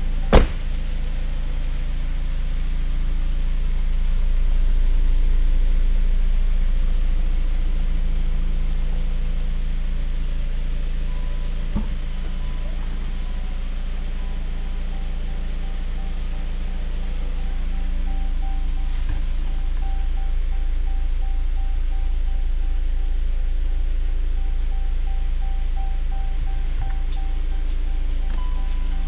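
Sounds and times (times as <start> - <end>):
car engine idling: 0.0 - 29.0
car door slamming: 0.3 - 0.7
faint beeping chime: 11.1 - 23.4, 24.1 - 29.0.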